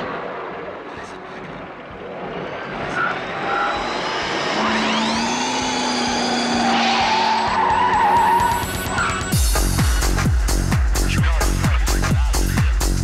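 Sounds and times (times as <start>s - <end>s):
tyres skidding: 0.0s - 9.4s
vehicle engine revving: 1.9s - 9.4s.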